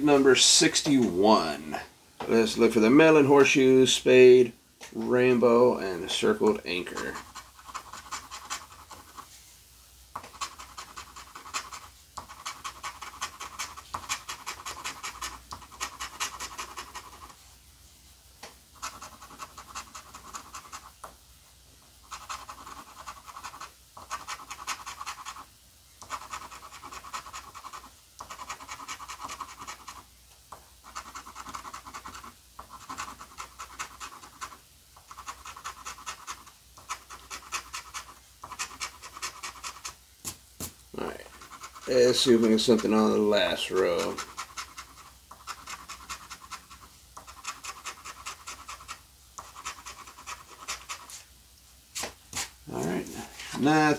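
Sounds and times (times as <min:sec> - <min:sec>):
coin scratching lottery ticket: 0:05.9 - 0:09.3, 0:10.2 - 0:17.4, 0:18.8 - 0:21.0, 0:22.0 - 0:30.1, 0:30.8 - 0:40.0, 0:41.0 - 0:51.2.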